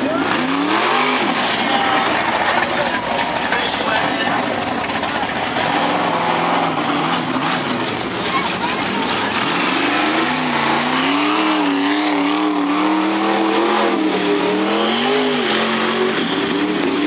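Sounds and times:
truck engine revving: 0.0s - 17.0s.

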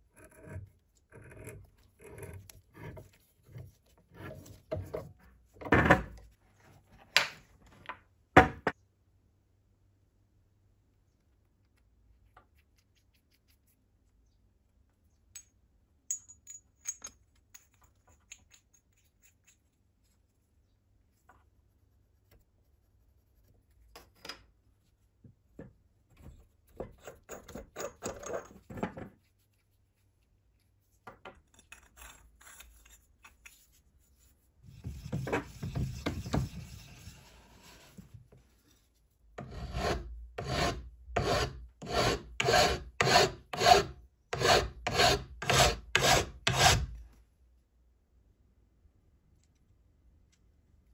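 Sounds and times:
hand file rasping on metal: 39.4s - 47.0s.

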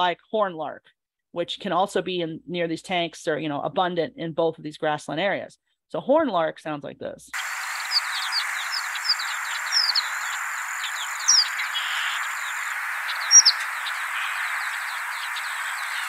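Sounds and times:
background hiss: 7.4s - 16.0s
bird chirping: 7.4s - 16.0s.

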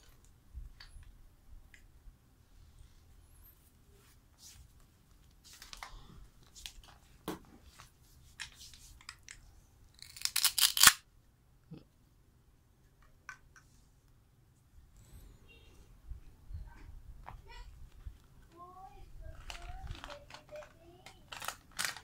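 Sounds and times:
plastic toy pieces clicking: 10.0s - 11.0s, 19.3s - 22.0s
plastic bag crinkling: 19.3s - 22.0s.

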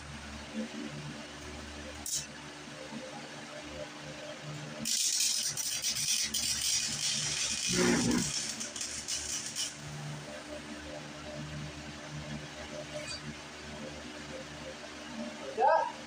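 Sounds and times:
electric welder crackling: 1.9s - 2.4s, 4.6s - 11.0s.

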